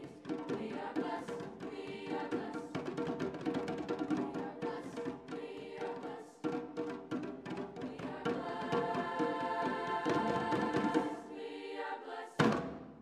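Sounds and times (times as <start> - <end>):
treble choir singing: 0.0 - 13.0
hand drums striking: 2.4 - 5.4, 6.4 - 9.0.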